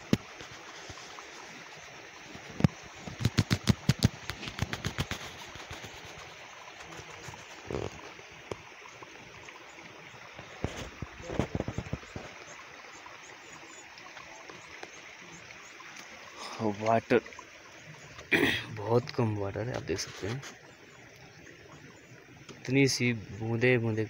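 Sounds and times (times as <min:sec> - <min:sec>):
sharp clicks and knocks: 0:02.6 - 0:05.2.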